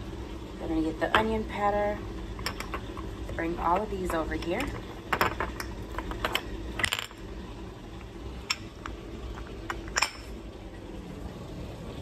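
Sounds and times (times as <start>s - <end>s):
dishwasher humming: 0.0s - 12.0s
glass jars clinking: 2.4s - 2.9s, 4.1s - 7.2s, 9.4s - 10.4s.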